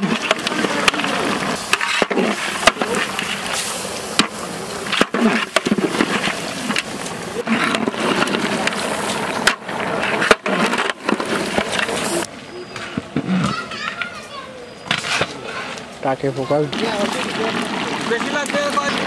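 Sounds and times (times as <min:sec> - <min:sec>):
faint voices: 0:00.0 - 0:09.9, 0:11.2 - 0:19.0
spatula scraping metal pot: 0:00.0 - 0:13.5, 0:14.9 - 0:15.8.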